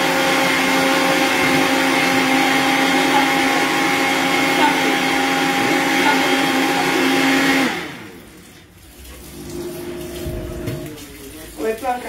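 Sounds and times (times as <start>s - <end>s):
blender motor running: 0.0s - 8.5s.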